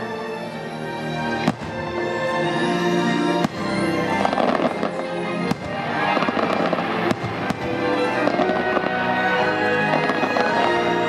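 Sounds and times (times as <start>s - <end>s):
fireworks crackling: 3.3s - 11.0s
fireworks bangs: 3.4s - 9.2s.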